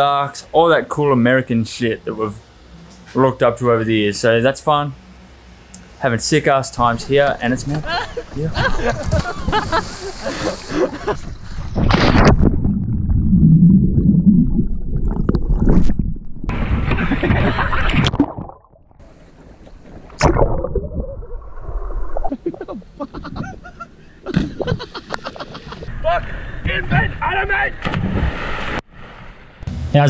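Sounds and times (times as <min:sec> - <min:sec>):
water splashing: 0:06.9 - 0:25.9.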